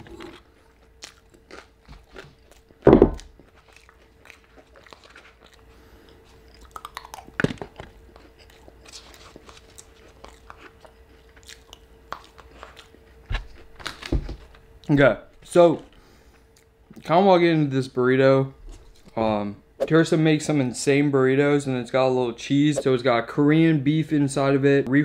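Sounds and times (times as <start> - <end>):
chewing and crunching food: 0.0 - 15.0
loud thump: 2.9 - 3.2.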